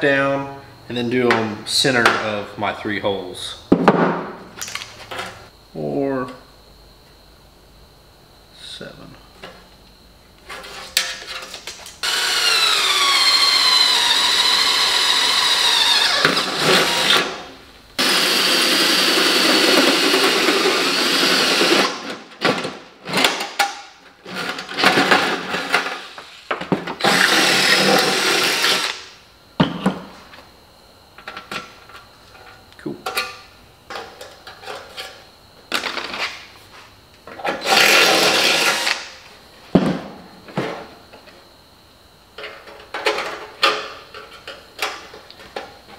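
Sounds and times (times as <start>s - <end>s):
cordless drill boring through steel: 12.0s - 17.2s, 18.0s - 21.8s, 27.1s - 29.0s, 37.7s - 39.0s.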